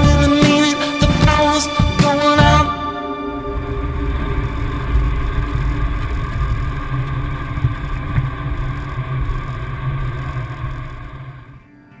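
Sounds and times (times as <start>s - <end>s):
steady humming tones: 0.0s - 12.0s.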